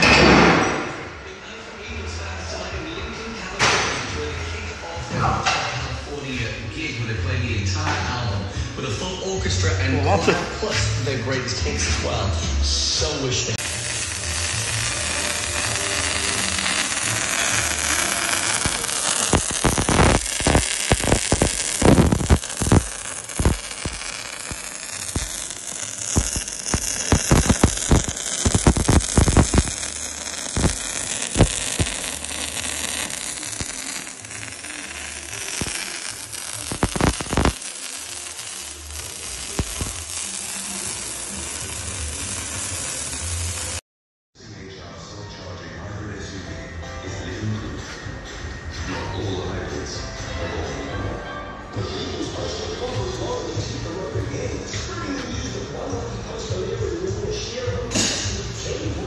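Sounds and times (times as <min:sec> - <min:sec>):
welding arc sizzling hiss: 0:13.6 - 0:43.8
welding crackles and pops: 0:13.6 - 0:43.8.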